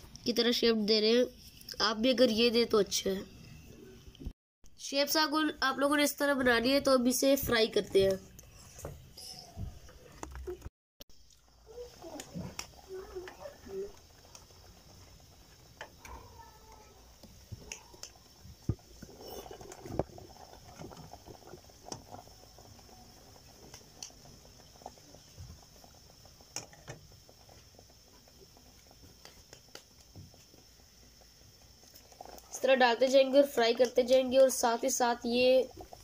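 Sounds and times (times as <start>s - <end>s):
dough sizzling in hot oil: 11.1s - 36.0s.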